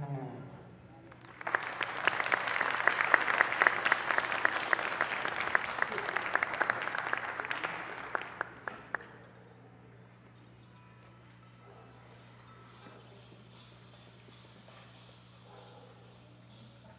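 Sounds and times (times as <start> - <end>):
audience applauding: 1.1 - 9.3.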